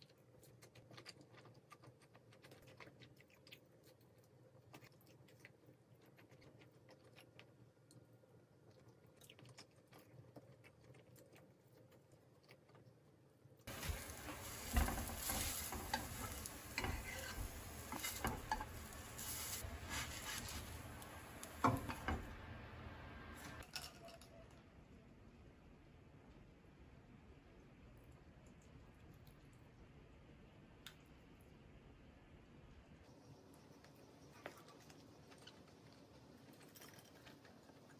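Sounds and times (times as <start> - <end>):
utensil clinking against pan: 13.7 - 19.6
food sizzling in a pan: 13.7 - 23.6.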